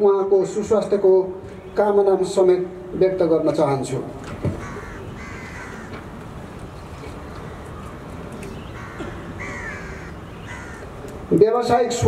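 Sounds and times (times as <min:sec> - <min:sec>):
outdoor background hum: 0:00.0 - 0:12.0
crows cawing: 0:04.4 - 0:06.2, 0:08.6 - 0:11.1.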